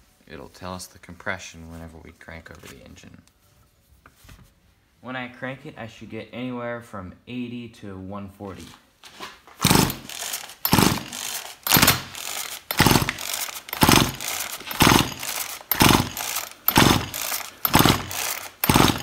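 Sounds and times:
chainsaw pull-cord cranking: 0:09.6 - 0:19.0.

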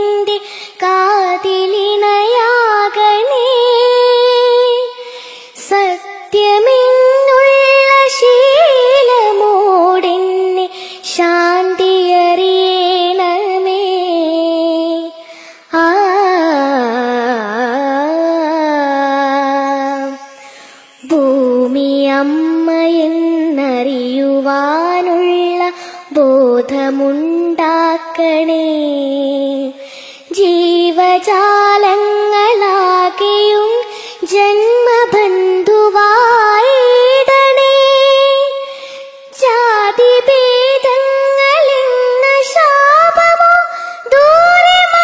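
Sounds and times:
person singing prayer song: 0:00.0 - 0:05.0, 0:05.7 - 0:45.0.

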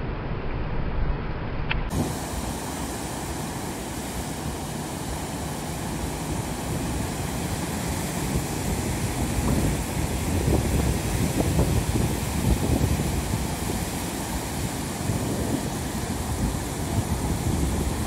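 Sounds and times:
surf washing up a beach: 0:01.9 - 0:18.0
wind on microphone: 0:01.9 - 0:18.0.

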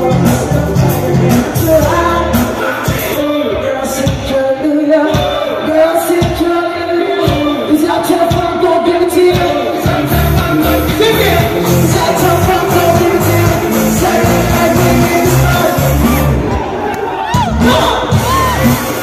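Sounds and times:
bass: 0:00.0 - 0:05.0, 0:07.2 - 0:19.0
man singing: 0:00.0 - 0:16.8, 0:17.5 - 0:19.0
drums: 0:00.0 - 0:19.0
electric guitars: 0:09.3 - 0:19.0.

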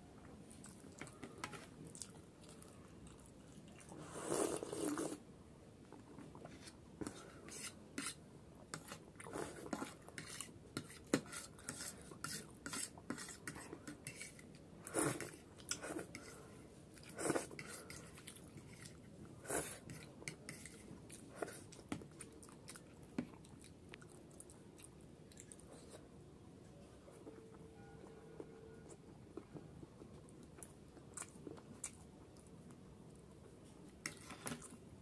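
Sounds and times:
noodles slurped and chewed: 0:00.5 - 0:05.2, 0:08.8 - 0:26.1
fork scraping a plate: 0:07.5 - 0:08.2, 0:08.8 - 0:16.4, 0:17.2 - 0:20.8.

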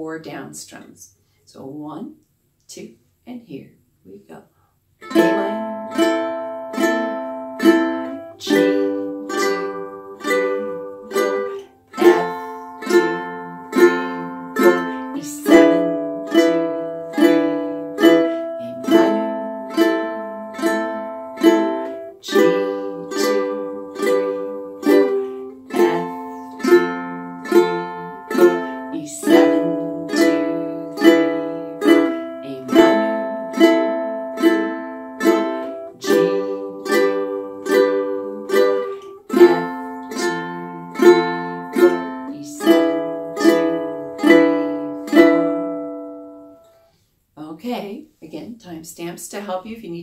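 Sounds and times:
ukulele strumming chords: 0:05.0 - 0:46.8.

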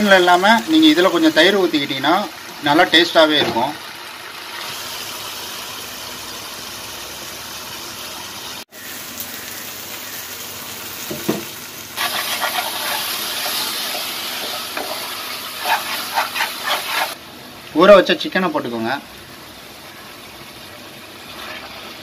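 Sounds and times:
food sizzling in a frying pan: 0:00.0 - 0:22.0
spatula stirring: 0:12.0 - 0:17.2, 0:21.2 - 0:22.0.

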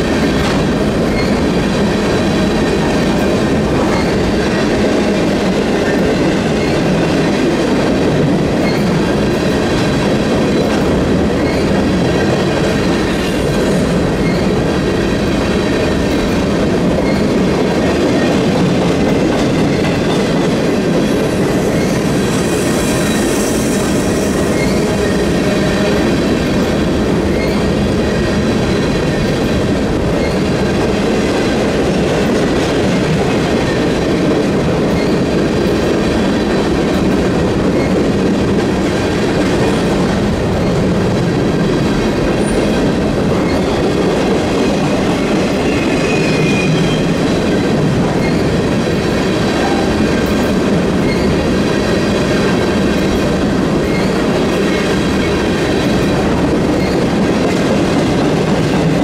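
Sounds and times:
clickety-clack over rail joints: 0:00.0 - 0:59.0
steel wheels rumbling on rails: 0:00.0 - 0:59.0
high-pitched wheel squeal: 0:45.6 - 0:47.2.

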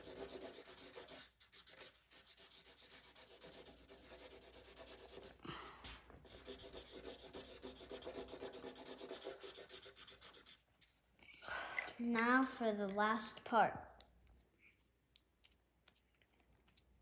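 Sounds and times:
felt-tip marker scribbling on paper: 0:00.0 - 0:05.4, 0:06.2 - 0:10.6.

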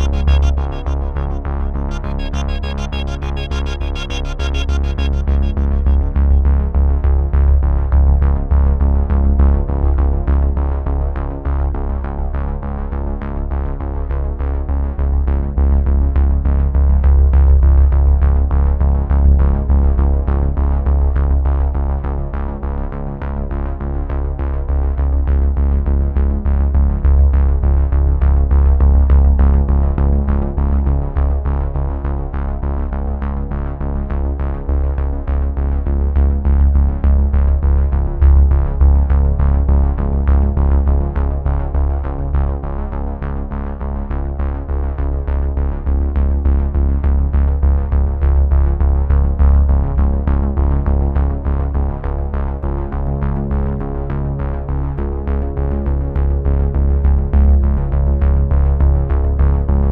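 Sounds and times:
electronic music with heavy bass: 0:00.0 - 0:06.9.

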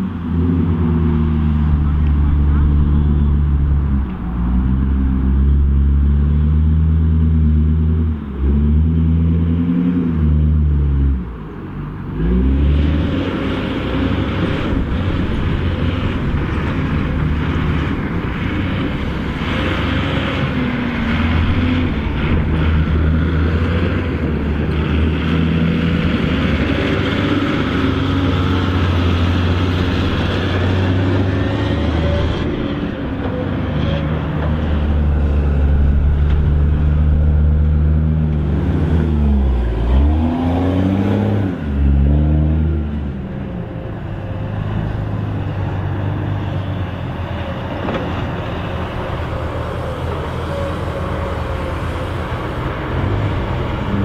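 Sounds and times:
heavy diesel engines under load: 0:00.0 - 0:54.0.

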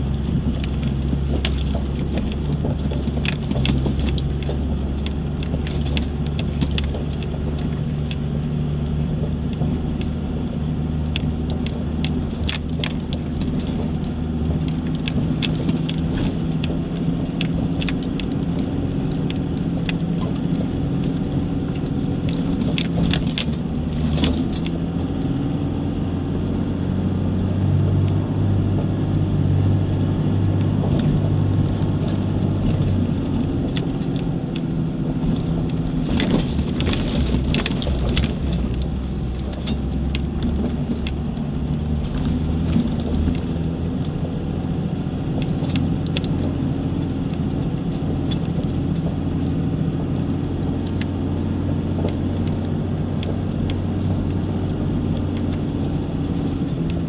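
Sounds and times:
vehicle engine pulling: 0:00.0 - 0:57.0
knocks and rattles: 0:00.3 - 0:08.2.

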